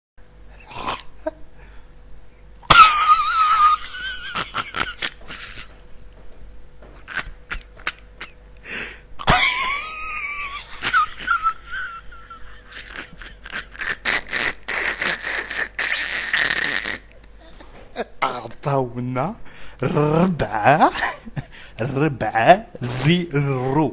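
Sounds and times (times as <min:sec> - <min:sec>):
man laughing: 0:02.7 - 0:05.8, 0:07.0 - 0:08.4, 0:09.2 - 0:16.7, 0:17.8 - 0:18.5, 0:19.8 - 0:22.1.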